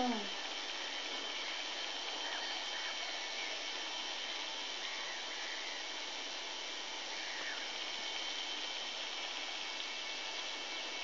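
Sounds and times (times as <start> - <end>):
faint high whine: 0.0 - 11.0
steady hiss: 0.0 - 11.0
tern calls: 7.0 - 8.1.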